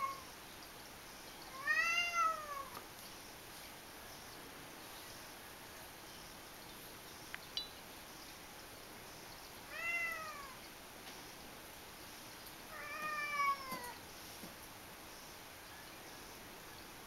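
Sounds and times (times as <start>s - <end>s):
cat meowing: 0.0s - 0.2s, 1.5s - 2.7s, 9.7s - 10.6s, 12.7s - 14.0s.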